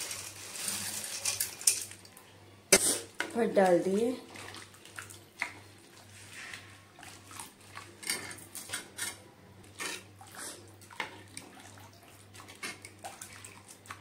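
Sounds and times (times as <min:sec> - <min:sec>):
liquid sloshing: 0:04.2 - 0:08.8, 0:09.8 - 0:14.0.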